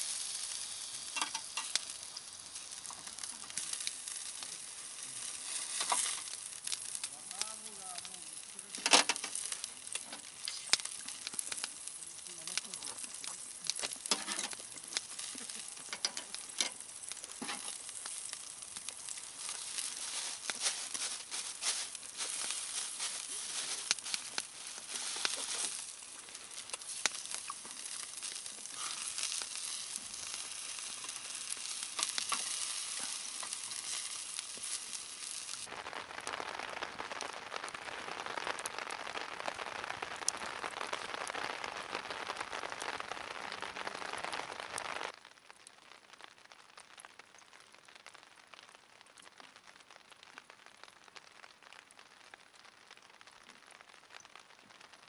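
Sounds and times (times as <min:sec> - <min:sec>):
steady gas hiss: 0:00.0 - 0:35.7
meat sizzling on grill: 0:00.0 - 0:45.2
wood fire crackling: 0:00.0 - 0:55.0.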